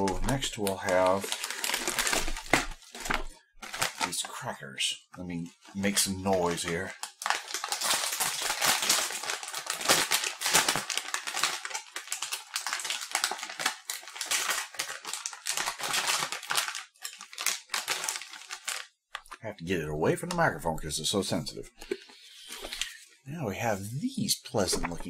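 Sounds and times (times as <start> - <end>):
plastic snack bag crinkling: 0.0 - 4.5, 5.2 - 19.5, 24.7 - 25.0.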